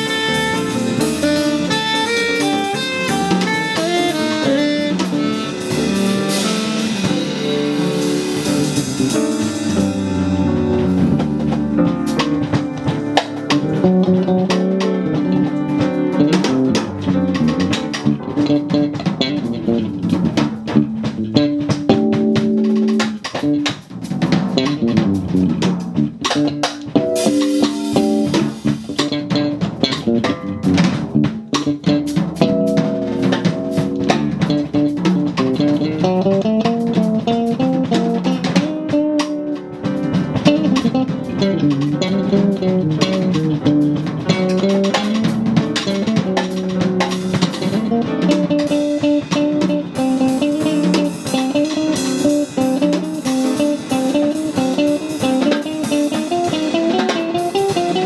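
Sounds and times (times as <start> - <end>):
drum kit with cymbals: 0.0 - 58.0
jazz fusion band playing: 0.0 - 58.0.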